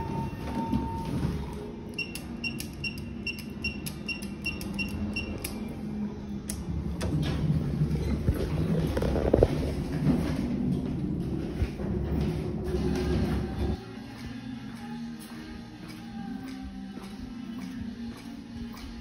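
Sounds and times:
elevator rumbling: 0.0s - 13.8s.

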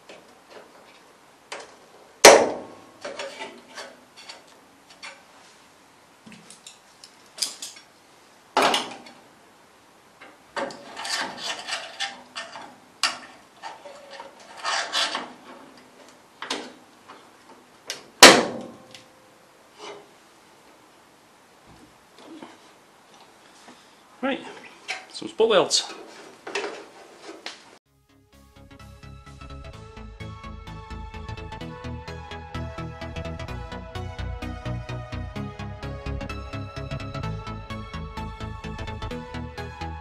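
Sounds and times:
metal tools clicking and rattling: 10.6s - 15.3s.

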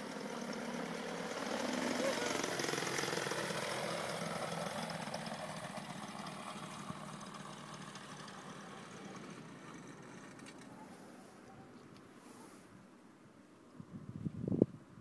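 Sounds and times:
paramotor engine running: 0.0s - 11.4s.

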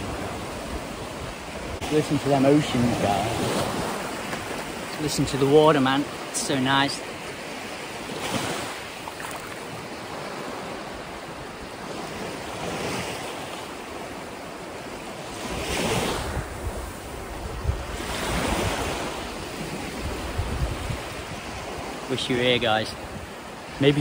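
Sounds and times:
wind buffeting microphone: 0.0s - 5.4s, 15.5s - 22.1s
waves washing on sandy shore: 0.0s - 24.0s.

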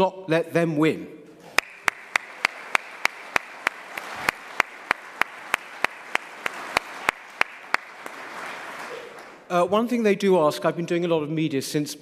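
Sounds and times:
audience applauding: 1.5s - 9.5s
sharp evenly timed claps: 1.6s - 8.9s.

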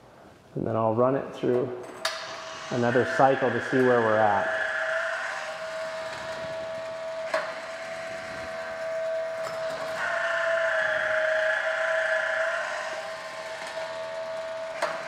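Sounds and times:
sharp click: 1.8s - 2.4s
motor whining: 1.8s - 15.0s.

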